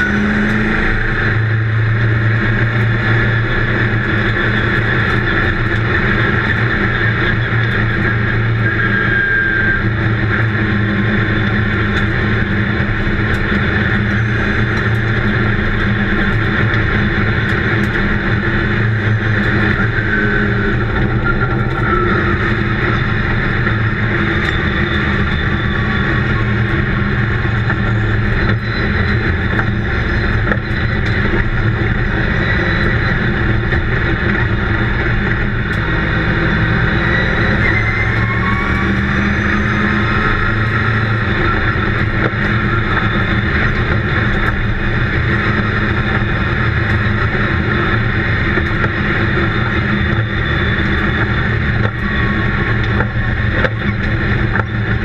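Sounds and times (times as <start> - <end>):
race car engine drone: 0.0 - 55.0.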